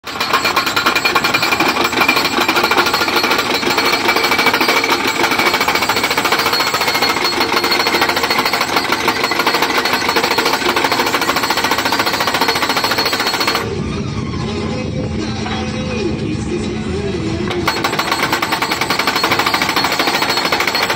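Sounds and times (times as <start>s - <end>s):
post driver hammering steel post: 0.0s - 13.7s, 17.5s - 20.9s.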